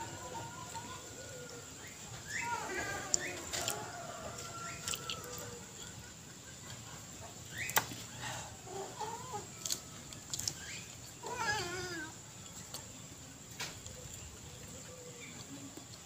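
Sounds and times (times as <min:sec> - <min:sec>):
chickens clucking: 0:00.0 - 0:16.0
chickens pecking clicks: 0:02.8 - 0:05.5, 0:09.5 - 0:10.8.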